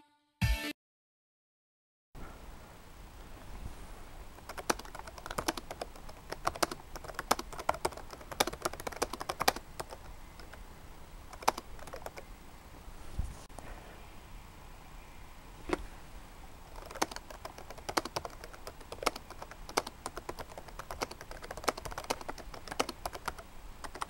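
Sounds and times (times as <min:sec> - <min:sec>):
laptop keyboard typing: 0:04.4 - 0:10.6, 0:11.3 - 0:12.2, 0:16.7 - 0:24.0.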